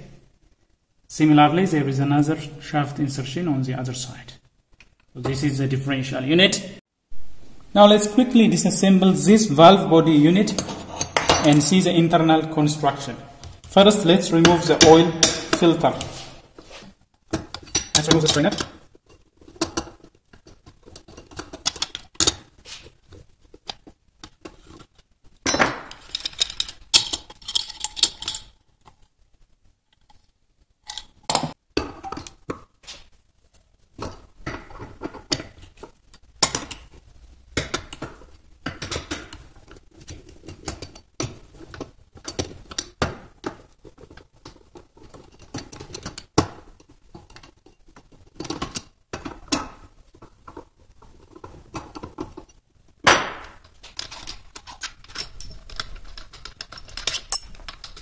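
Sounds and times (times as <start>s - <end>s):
metal tools clinking on metal: 54.0s - 58.0s.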